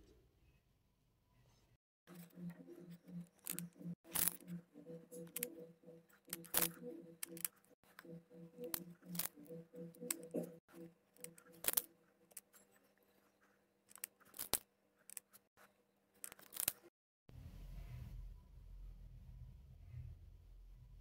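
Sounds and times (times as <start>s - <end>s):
plastic beads clicking: 6.3s - 7.6s, 16.2s - 16.8s.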